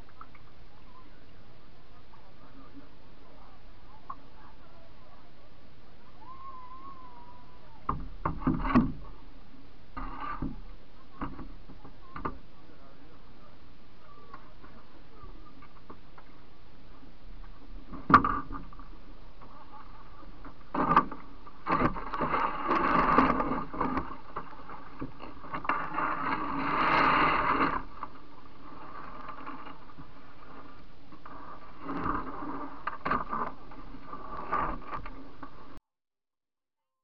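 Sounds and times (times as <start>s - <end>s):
canoe scraping on gravel: 9.9s - 11.7s, 17.3s - 35.8s.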